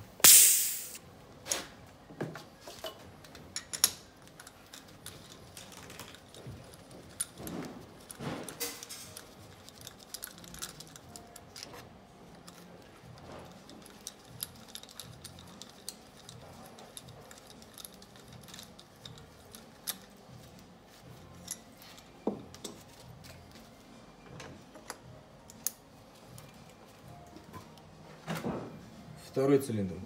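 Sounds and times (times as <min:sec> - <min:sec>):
light metallic clicks and clinks: 0:02.7 - 0:23.6.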